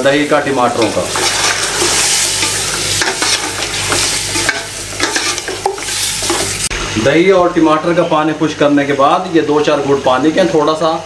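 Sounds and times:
food sizzling in oil: 0.0s - 7.2s
metal spoon scraping pot: 0.8s - 6.6s.

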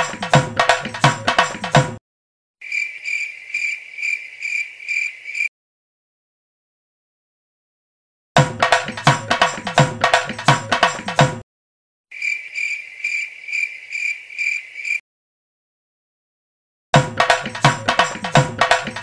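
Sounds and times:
fast drum and percussion music: 0.0s - 2.0s, 8.4s - 11.4s, 17.0s - 19.0s
cricket chirping: 2.6s - 5.5s, 12.1s - 15.0s.

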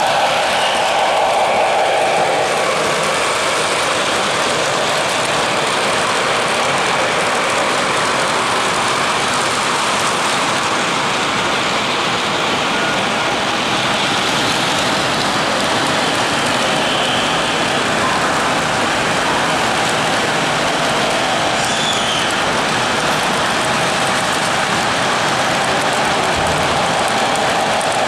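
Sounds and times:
model train wheels rolling on rails: 0.0s - 28.0s.

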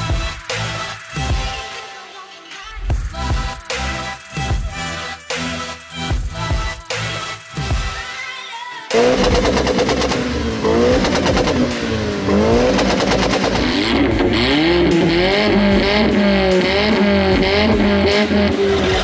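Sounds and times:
car exhausts revving: 8.9s - 19.0s
exhaust crackling: 8.9s - 19.0s.

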